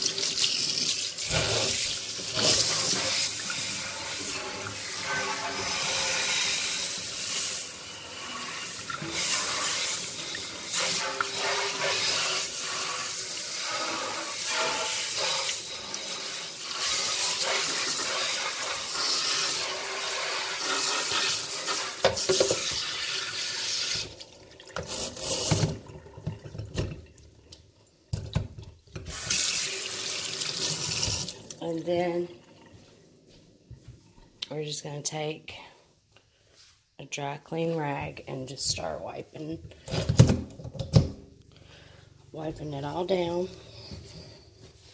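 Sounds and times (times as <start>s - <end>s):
faucet running: 0.0s - 27.2s, 29.0s - 32.8s.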